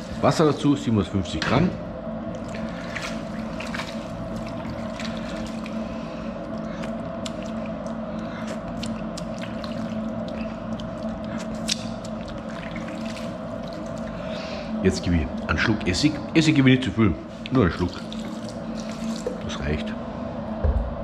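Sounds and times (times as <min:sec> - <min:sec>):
steady hum: 0:00.0 - 0:21.0
wet sloshing: 0:02.2 - 0:20.0
hands squishing wet meat: 0:02.3 - 0:16.1, 0:17.3 - 0:19.8.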